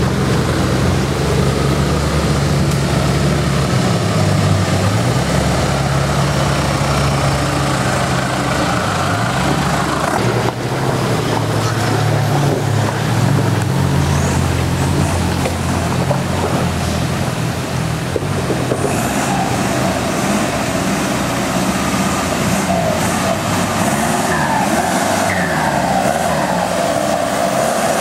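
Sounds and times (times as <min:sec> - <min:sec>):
off-road vehicle engine revving: 0:00.0 - 0:28.0.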